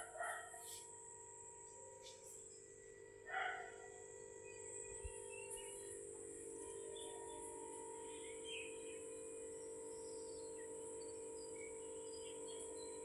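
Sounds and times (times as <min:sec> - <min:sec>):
faint steady hum: 0:00.0 - 0:13.0
faint bird chirps: 0:06.7 - 0:09.4.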